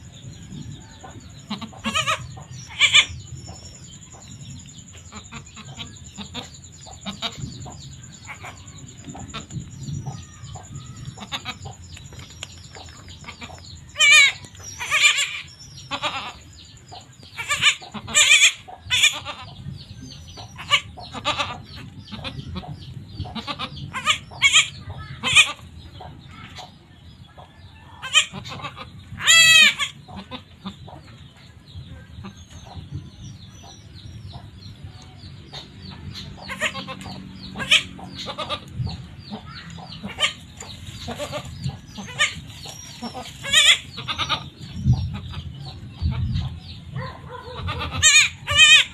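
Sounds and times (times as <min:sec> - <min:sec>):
goats bleating: 0:36.5 - 0:38.7, 0:41.1 - 0:42.4, 0:43.0 - 0:44.5, 0:47.6 - 0:48.9.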